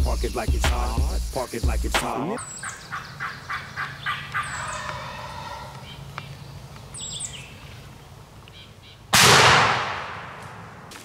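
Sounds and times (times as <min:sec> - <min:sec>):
songbirds chirping: 0:00.0 - 0:09.1
turkey gobbling: 0:02.0 - 0:06.2
shotgun blast echoing: 0:09.2 - 0:10.8.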